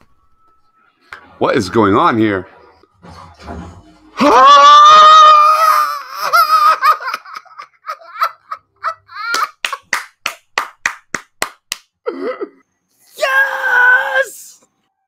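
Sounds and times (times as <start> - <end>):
excited whoops: 4.2 - 6.4
man screaming: 4.2 - 6.8, 13.1 - 14.6
laughter: 6.1 - 9.9.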